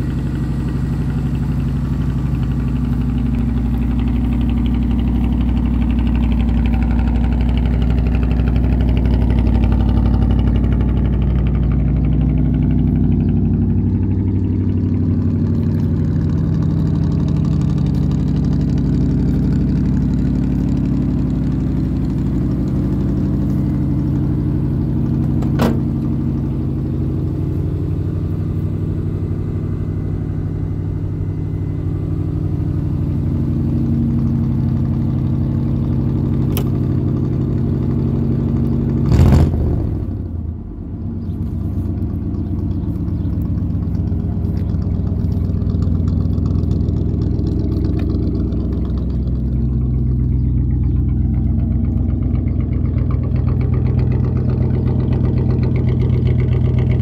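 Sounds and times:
vee eight engine idling: 0:00.0 - 0:57.0
loud thump: 0:25.4 - 0:26.0.

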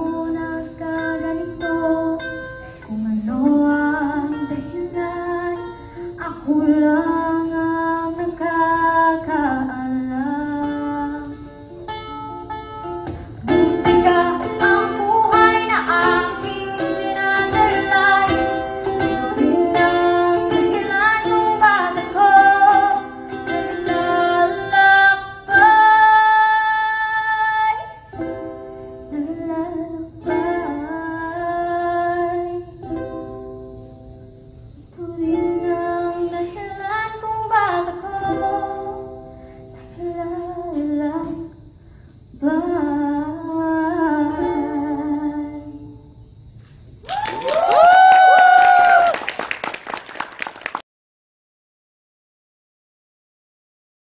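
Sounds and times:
ukulele strumming: 0:00.0 - 0:08.5, 0:10.0 - 0:41.5
woman singing into a microphone: 0:00.0 - 0:11.7, 0:13.4 - 0:28.1, 0:29.1 - 0:32.9, 0:34.9 - 0:39.0, 0:39.8 - 0:41.7, 0:42.3 - 0:46.1.

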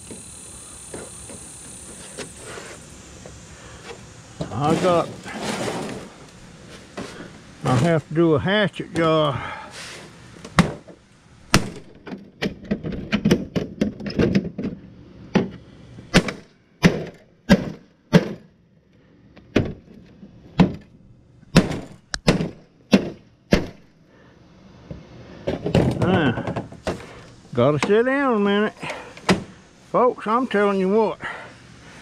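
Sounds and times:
hatchet chopping plastic: 0:11.5 - 0:14.5, 0:16.1 - 0:18.5, 0:21.5 - 0:23.8.

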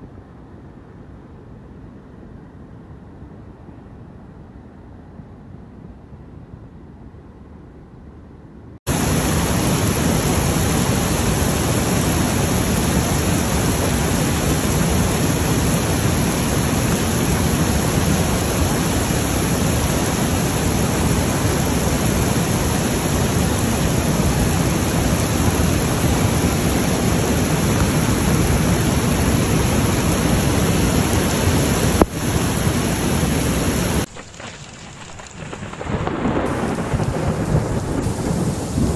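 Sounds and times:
rushing water: 0:08.9 - 0:38.9.

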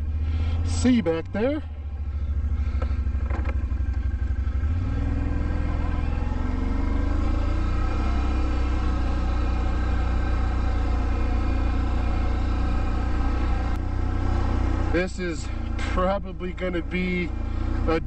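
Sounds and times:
quad bike engine running: 0:00.0 - 0:18.0.

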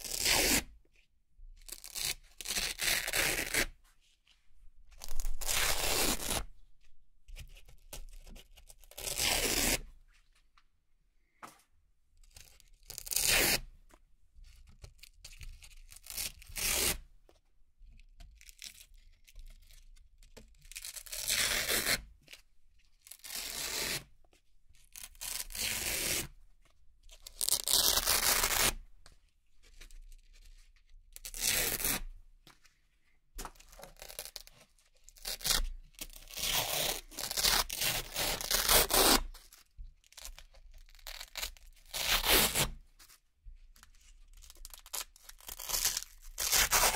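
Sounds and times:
velcro ripping: 0:00.0 - 0:00.7, 0:01.8 - 0:03.7, 0:05.0 - 0:06.5, 0:09.0 - 0:09.8, 0:27.2 - 0:28.8, 0:31.2 - 0:32.1, 0:35.2 - 0:39.5, 0:40.9 - 0:42.8, 0:44.5 - 0:46.9.

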